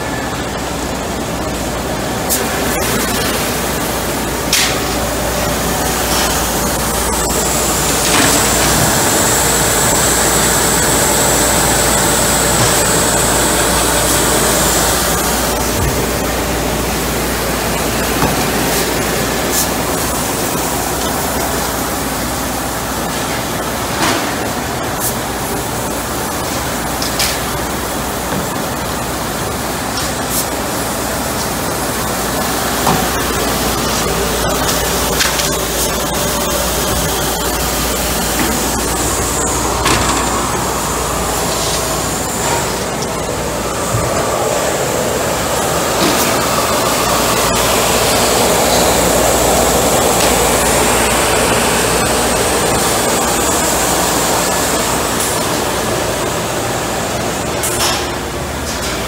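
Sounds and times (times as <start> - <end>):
belt sander rushing noise: 5.5 - 16.2.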